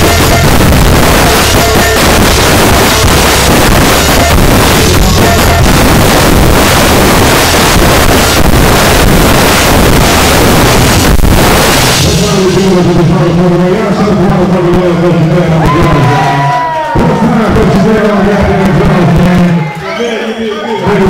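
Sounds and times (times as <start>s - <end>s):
cymbal wash: 0.0s - 12.8s
drum kit played hard: 0.0s - 13.3s.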